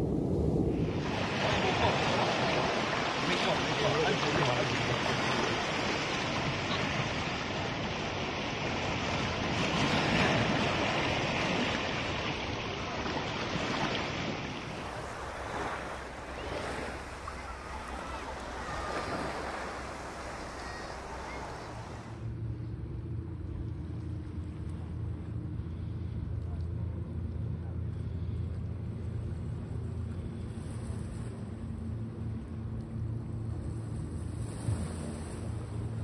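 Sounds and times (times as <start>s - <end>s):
ocean surf washing in: 0.0s - 22.3s
low motor hum: 0.0s - 36.0s.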